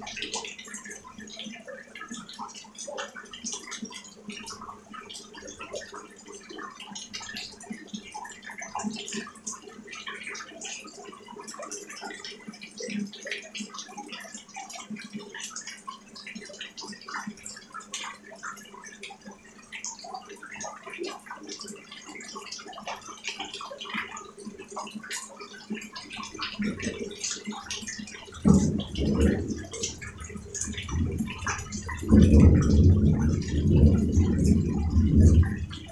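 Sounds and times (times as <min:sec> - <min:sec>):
rain splashing on water: 0:00.0 - 0:35.9
low steady hum: 0:26.4 - 0:35.9.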